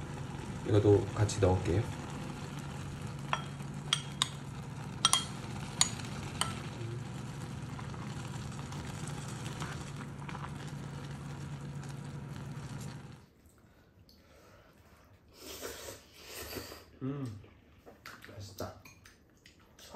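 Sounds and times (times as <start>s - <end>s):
low hum: 0.0s - 13.3s
broth simmering and sizzling: 0.0s - 16.8s.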